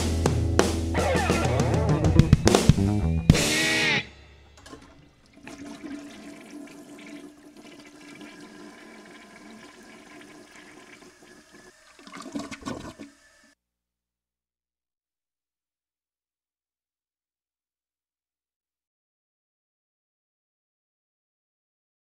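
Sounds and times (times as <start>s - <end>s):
band chord: 0.0s - 4.6s
toilet flushing: 4.4s - 13.6s
water gurgling: 4.6s - 13.5s.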